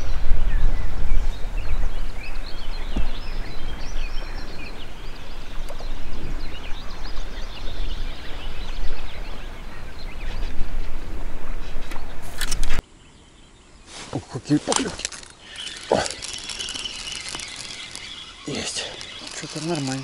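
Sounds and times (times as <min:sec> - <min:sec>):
wind buffeting microphone: 0:00.0 - 0:12.8
small birds chirping: 0:00.0 - 0:20.0.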